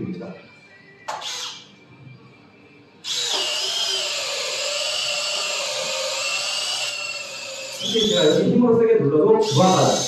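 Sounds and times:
cordless drill motor whine: 1.1 - 1.6, 3.0 - 8.6, 9.4 - 10.0
drill bit cutting wood: 1.1 - 1.6, 3.0 - 8.6, 9.4 - 10.0.

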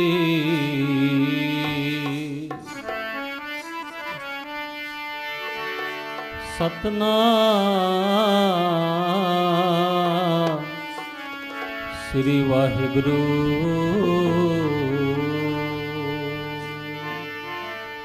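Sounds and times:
steady instrumental notes: 0.0 - 18.0
short knock: 1.6 - 3.1.

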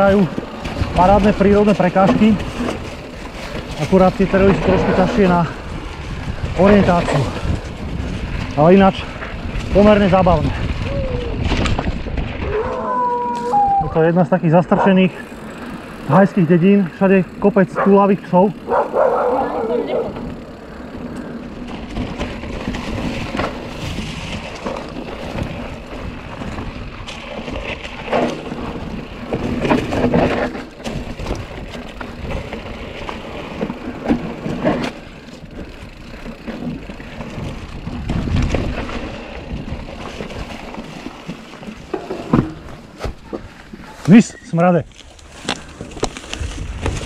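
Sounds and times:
bike knocking over rocks: 0.0 - 12.8, 20.0 - 44.2, 44.8 - 47.0
bike tyres crunching on leaves: 0.0 - 47.0
wind rushing over microphone: 3.8 - 14.0, 36.9 - 40.7, 45.4 - 47.0.

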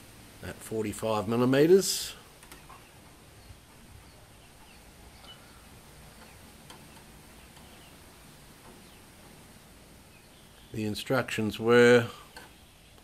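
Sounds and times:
low steady hum: 0.0 - 13.0
faint bird chirps: 2.5 - 9.2, 10.0 - 10.9
faint ticks: 6.2 - 7.9.

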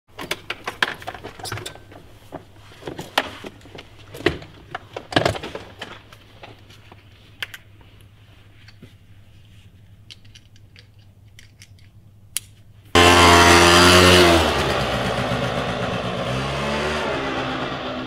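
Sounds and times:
handling clicks and knocks: 0.1 - 7.8, 9.8 - 12.6.

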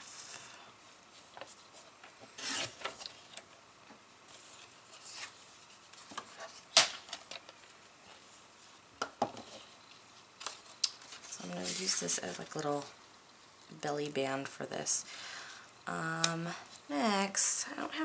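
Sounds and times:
paper sliding and scraping: 11.0 - 12.4.

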